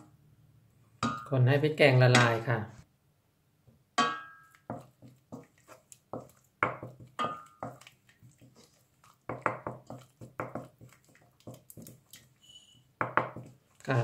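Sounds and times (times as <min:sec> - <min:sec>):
wooden spoon knocking on metal pot: 0:01.0 - 0:01.3, 0:04.0 - 0:05.5, 0:06.1 - 0:07.9, 0:09.3 - 0:11.9, 0:13.0 - 0:13.6.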